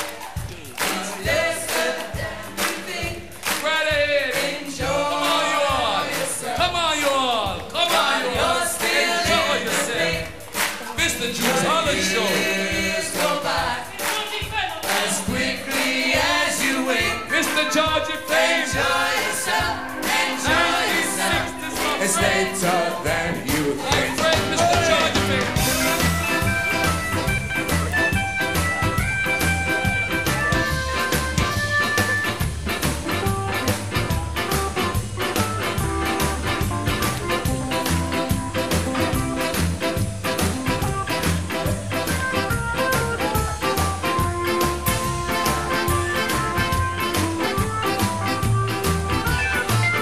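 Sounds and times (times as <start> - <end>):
voices singing together: 0.0 - 26.6
live ska band music: 0.0 - 50.0.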